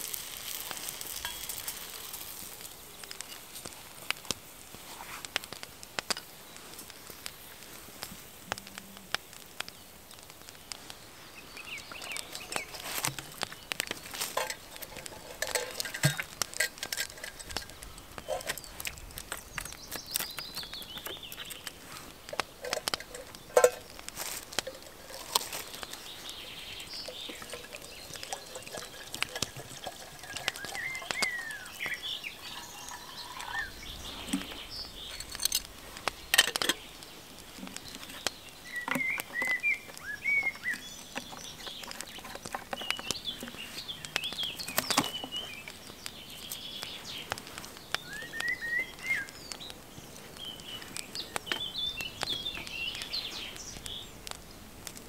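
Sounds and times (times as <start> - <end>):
twig fire crackling: 0.0 - 55.0
birds singing: 5.3 - 55.0
water poured into kettle: 27.3 - 31.5.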